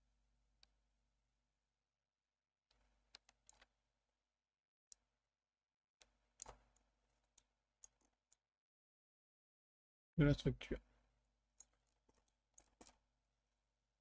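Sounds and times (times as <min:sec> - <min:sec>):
computer mouse clicks: 0:03.1 - 0:03.7, 0:06.0 - 0:08.1.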